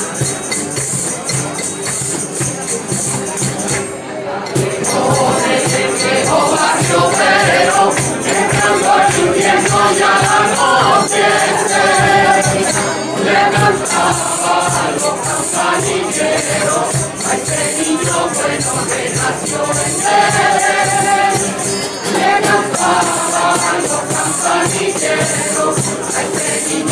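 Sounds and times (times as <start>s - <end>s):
cajon drumming: 0.0s - 3.9s, 4.6s - 26.9s
guitars strumming: 0.0s - 26.9s
tambourines: 0.0s - 26.9s
hand clapping: 0.5s - 4.0s
mixed group singing in chorus: 4.4s - 26.9s.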